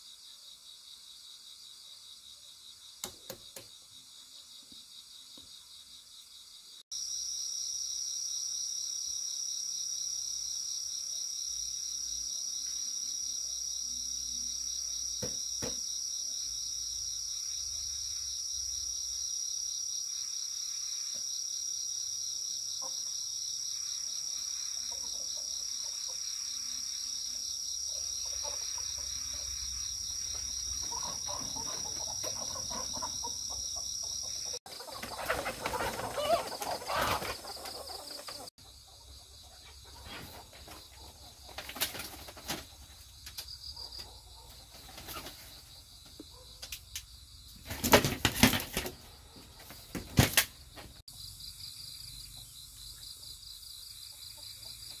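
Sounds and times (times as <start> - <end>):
insect chorus pulsing trill: 0.0 - 39.8, 51.0 - 55.0.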